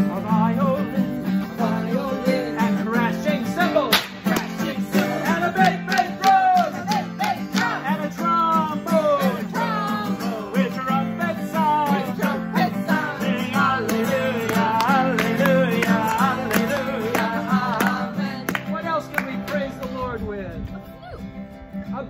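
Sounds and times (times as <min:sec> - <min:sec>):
group of voices singing: 0:00.0 - 0:18.8
acoustic guitar strumming: 0:00.0 - 0:22.0.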